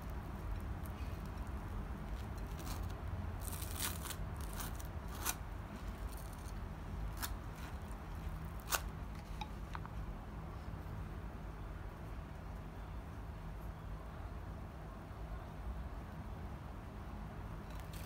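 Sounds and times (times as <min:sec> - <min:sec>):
small objects clicking and scraping: 0:00.0 - 0:09.5
steady low hum: 0:00.0 - 0:18.0.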